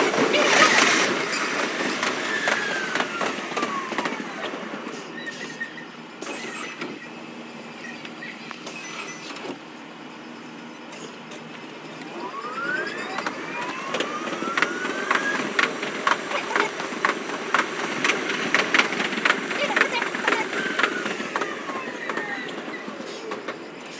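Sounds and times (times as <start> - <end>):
wheels clicking over rail joints: 0.0 - 5.1, 11.6 - 23.9
traction motors whining: 0.0 - 23.9.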